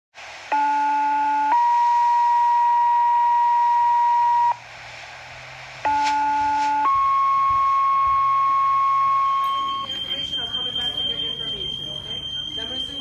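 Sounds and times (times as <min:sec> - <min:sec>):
two-tone radio page tones: 0:05.9 - 0:13.0.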